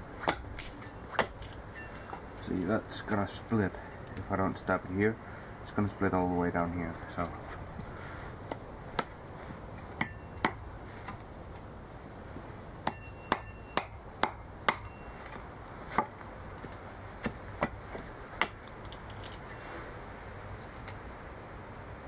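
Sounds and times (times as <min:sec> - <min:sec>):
hatchet chopping wood: 0:00.2 - 0:01.6, 0:08.5 - 0:09.2, 0:10.0 - 0:11.2, 0:12.8 - 0:15.0, 0:15.9 - 0:16.2, 0:17.2 - 0:19.0.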